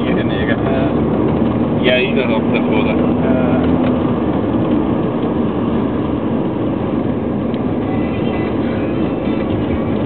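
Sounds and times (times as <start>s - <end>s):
car road noise: 0.0s - 10.0s.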